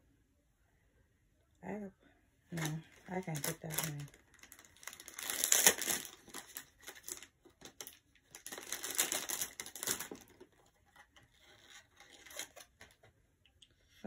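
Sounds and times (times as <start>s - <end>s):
rustling and crinkling handling: 2.5s - 13.2s.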